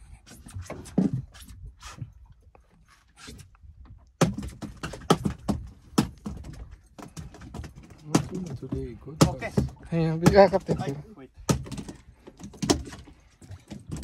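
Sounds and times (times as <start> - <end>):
handling knocks and thuds: 4.2 - 14.0.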